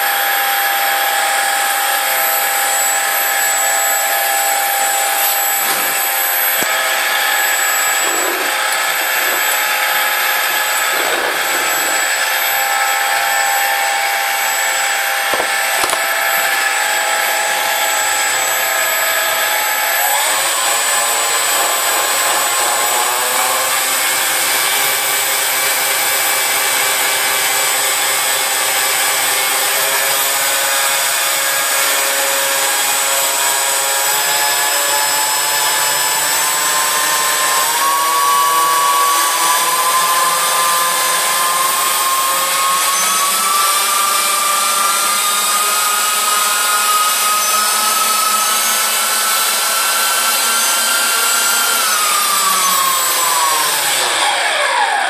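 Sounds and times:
electric fans whining: 0.0s - 26.3s.

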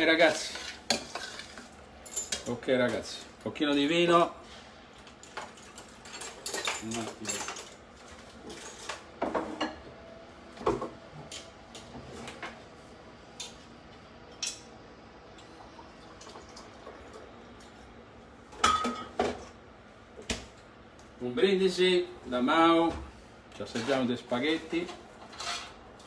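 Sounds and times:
glassware clatter with ringing clink: 18.6s - 19.2s
kitchenware clinking and knocking: 18.6s - 19.4s.

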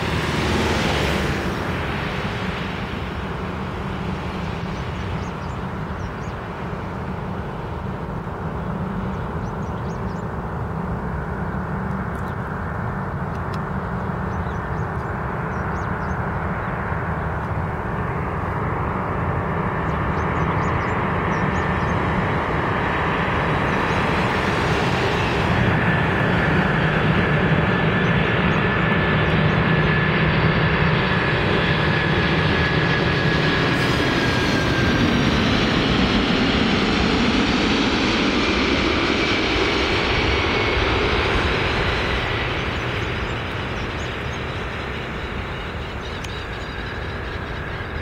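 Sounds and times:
jet engine noise: 0.0s - 48.0s
faint high whine: 39.9s - 48.0s.

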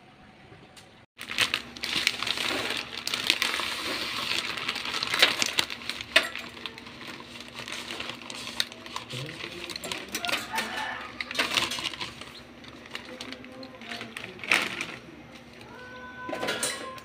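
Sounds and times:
water boiling in a metal pot: 1.2s - 13.3s
plastic packet crinkling: 1.2s - 15.8s.

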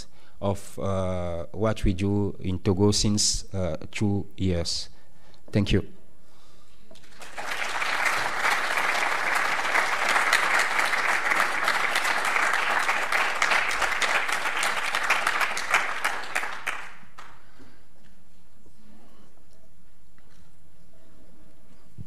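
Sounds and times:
audience applauding: 7.0s - 17.5s.

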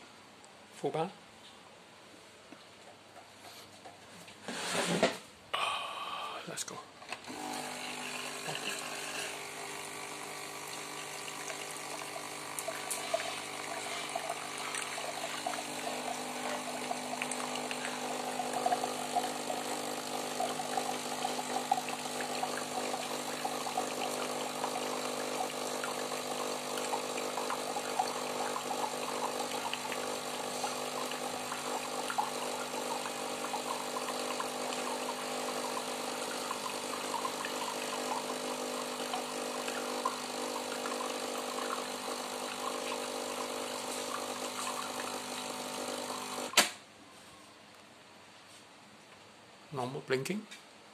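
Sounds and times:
coffee machine pump humming: 7.2s - 46.7s
coffee splashing into a glass: 10.6s - 45.8s.

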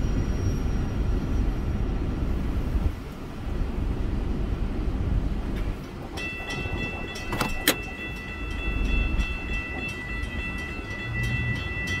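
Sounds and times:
crossing bell ringing: 5.7s - 12.0s.

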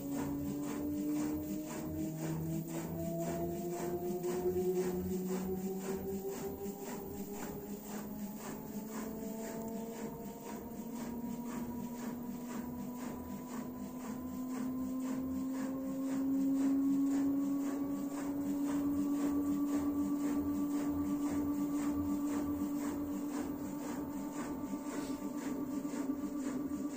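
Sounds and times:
soft regular pulsing: 0.0s - 26.9s
washing machine motor whine: 0.0s - 26.9s.

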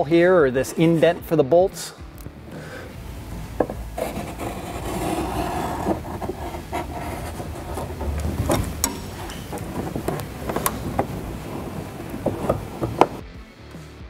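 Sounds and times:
pen tip rubbing along ruler: 3.9s - 13.0s.

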